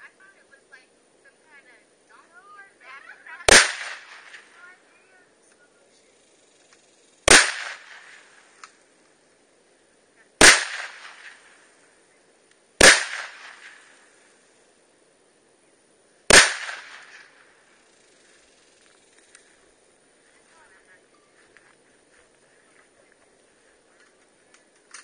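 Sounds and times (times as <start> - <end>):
rifle shots echoing: 3.5 - 4.6, 7.2 - 8.5, 10.4 - 11.6, 12.8 - 14.1, 16.3 - 17.5.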